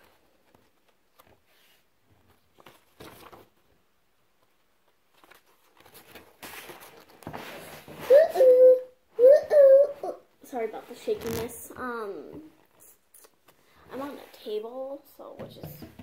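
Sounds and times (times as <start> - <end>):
journal handling clicks and rustles: 0.0 - 3.7, 4.4 - 8.1
pages being turned: 0.0 - 3.8, 4.4 - 8.6, 10.8 - 11.7.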